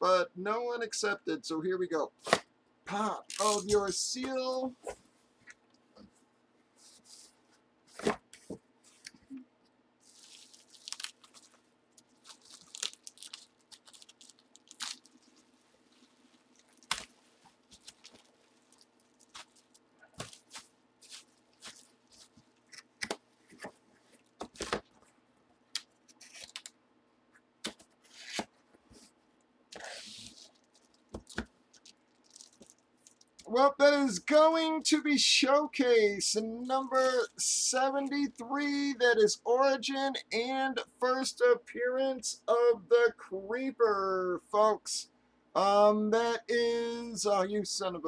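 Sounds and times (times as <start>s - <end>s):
faint steady hum: 0.0s - 48.0s
bubble wrap crinkling and tearing: 3.2s - 3.9s, 10.0s - 25.0s, 25.8s - 26.7s, 27.6s - 28.5s, 29.8s - 33.5s.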